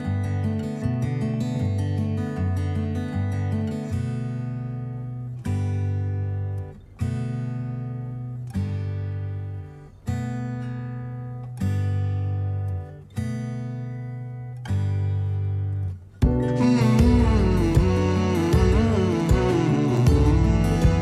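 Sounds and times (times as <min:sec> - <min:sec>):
acoustic guitar strumming chords: 0:00.0 - 0:21.0.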